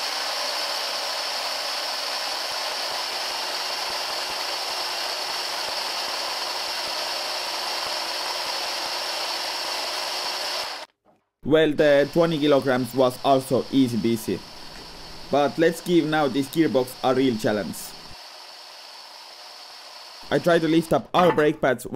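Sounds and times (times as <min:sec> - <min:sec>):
electric motors whining: 0:00.0 - 0:10.9, 0:11.8 - 0:20.9.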